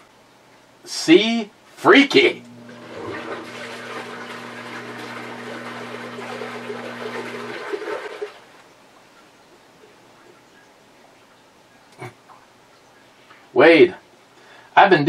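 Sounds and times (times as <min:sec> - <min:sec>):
low hum: 0:02.1 - 0:08.2
rushing water: 0:02.6 - 0:08.6.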